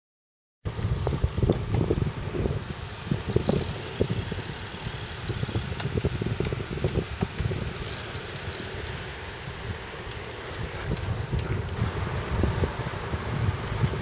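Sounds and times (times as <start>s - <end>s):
bike knocking over bumps: 0.7s - 2.0s
tyres humming on pavement: 0.7s - 14.0s
wind buffeting microphone: 0.7s - 14.0s.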